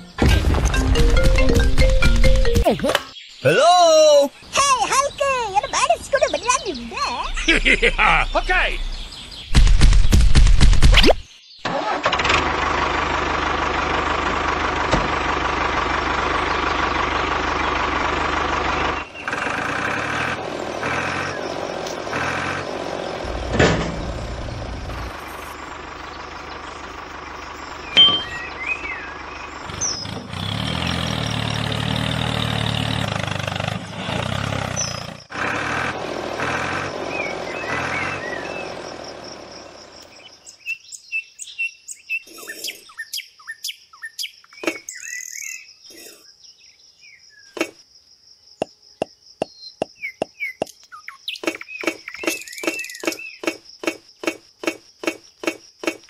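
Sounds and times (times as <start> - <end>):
birds chirping: 0.0 - 12.0, 15.3 - 47.8, 48.4 - 56.0
engine drone: 11.7 - 40.5.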